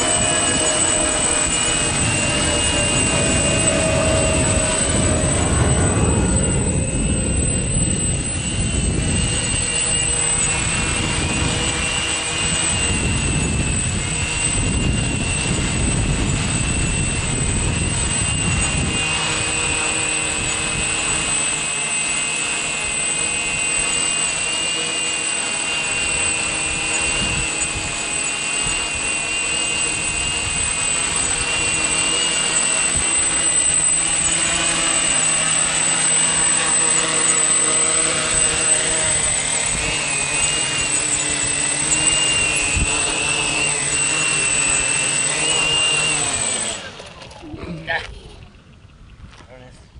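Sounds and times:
low rumble: 0.0 - 9.7
quadcopter propellers buzzing: 0.0 - 49.8.

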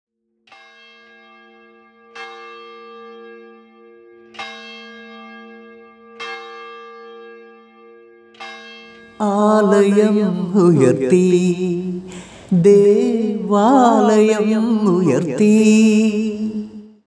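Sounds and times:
bell ringing: 0.5 - 12.3
held low chord: 7.0 - 17.0.

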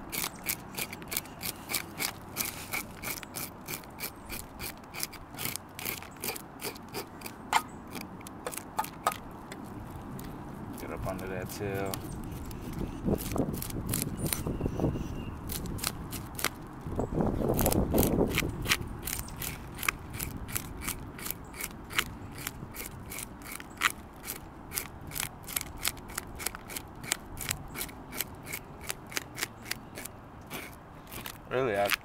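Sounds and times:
fork scraping fish scales: 0.1 - 8.9, 18.0 - 32.0.

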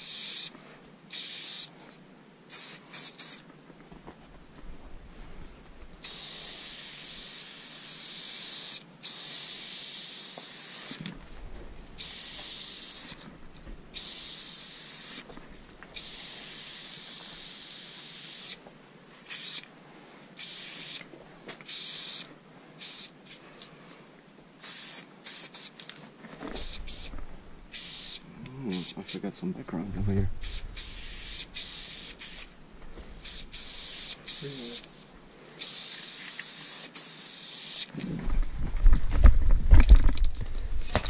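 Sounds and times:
spray paint can hissing: 0.0 - 0.5, 1.1 - 1.7, 2.5 - 3.4, 6.0 - 11.1, 12.0 - 13.2, 13.9 - 15.3, 16.0 - 18.6, 19.2 - 19.7, 20.4 - 23.4, 24.6 - 25.8, 26.5 - 29.2, 30.4 - 32.6, 33.2 - 35.0, 35.6 - 37.9.

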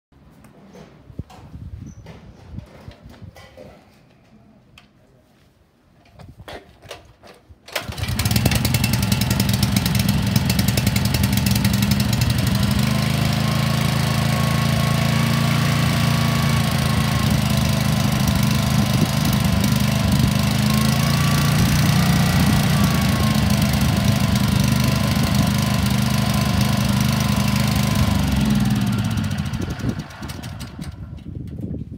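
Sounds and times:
pull starter cord: 6.8 - 31.6
small petrol engine running: 7.8 - 31.3.

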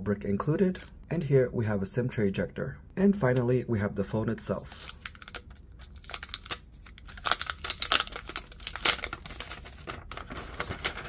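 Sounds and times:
plastic wrap crinkling and tearing: 4.6 - 11.0.

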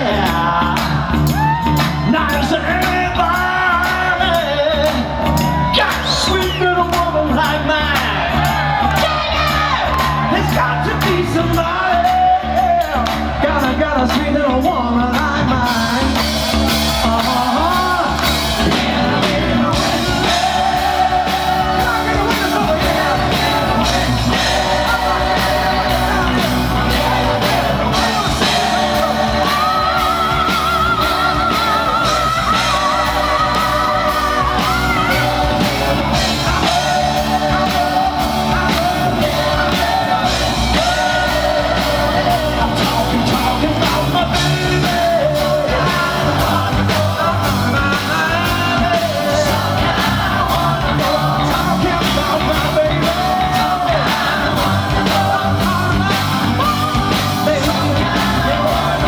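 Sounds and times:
drum beat: 0.0 - 59.0
electric bass: 0.0 - 59.0
keyboard: 0.0 - 59.0
lead singer singing: 0.0 - 59.0.

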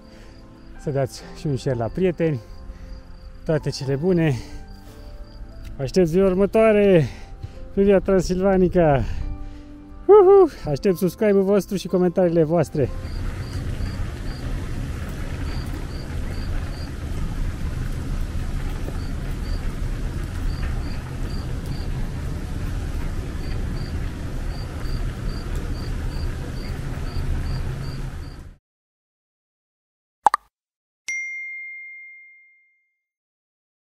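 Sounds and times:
wind rumbling on microphone: 12.9 - 28.5.

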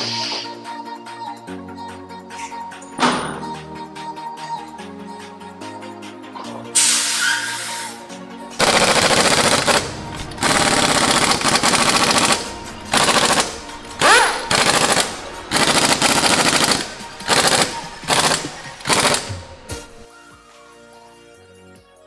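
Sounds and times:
impact wrench rattling: 8.6 - 19.5.

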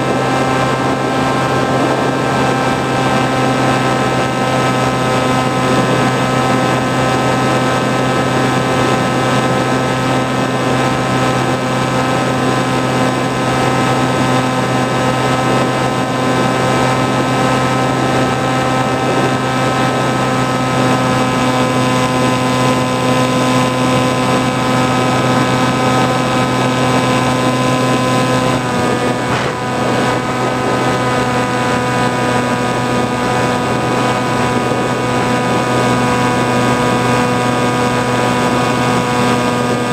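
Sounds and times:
model plane motor and propeller: 0.0 - 39.9
rush of air: 15.2 - 36.1.

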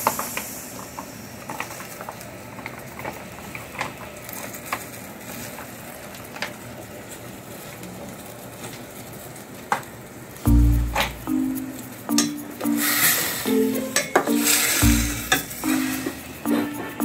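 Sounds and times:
faint steady hiss: 0.0 - 17.0.

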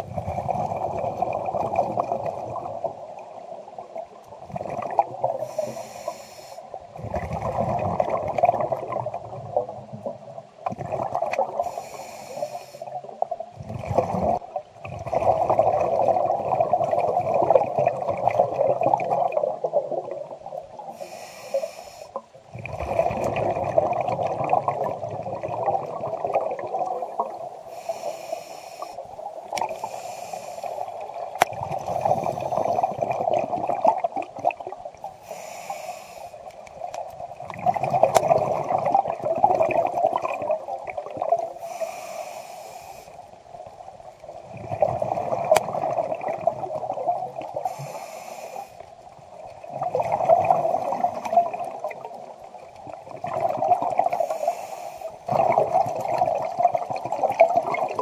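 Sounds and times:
scuba regulator breathing underwater: 4.6 - 7.2, 11.5 - 13.0, 20.8 - 22.2, 26.7 - 34.3, 35.0 - 36.6, 41.4 - 43.2, 47.5 - 48.9, 54.0 - 55.7.

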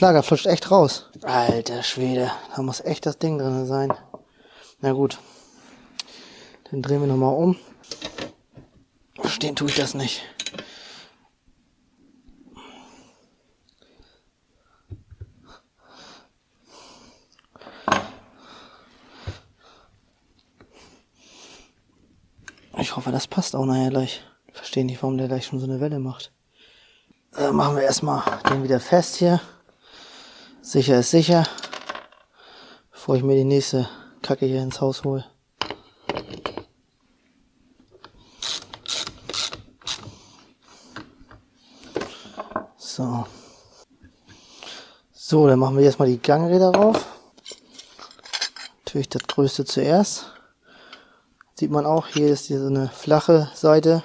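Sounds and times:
ratchet wrench clicking: 38.4 - 40.1.

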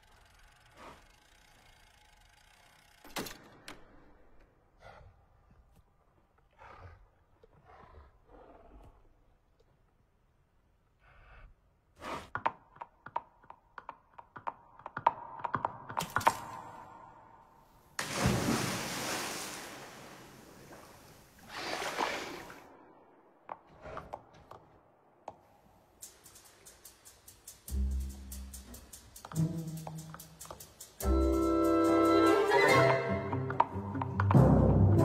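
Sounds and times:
splash into a pool: 18.0 - 22.7.

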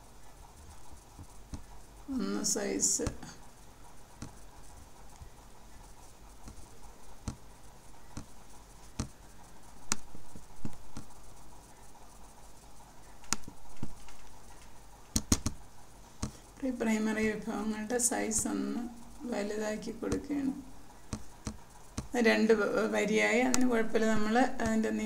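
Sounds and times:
computer mouse clicking: 4.2 - 5.3, 6.4 - 7.5, 8.1 - 11.4, 12.5 - 15.6, 20.1 - 22.2, 23.5 - 23.8.

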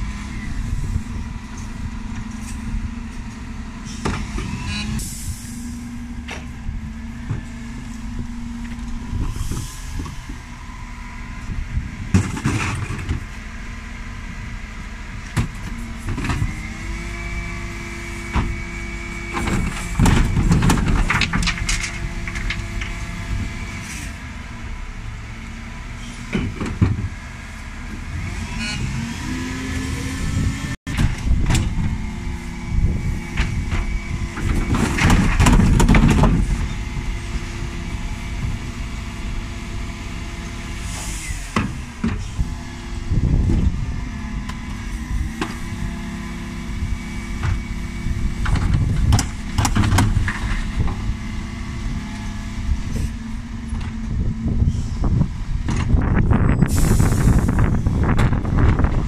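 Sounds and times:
bins clattering and banging: 33.3 - 36.7.

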